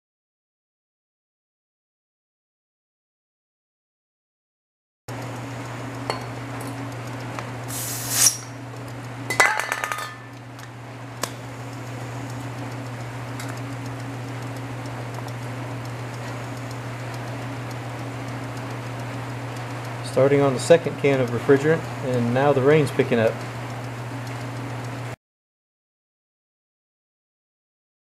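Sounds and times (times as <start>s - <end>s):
compressor motor humming: 5.1s - 25.2s
short rasping burst: 7.7s - 8.5s
rain hissing: 7.7s - 8.6s.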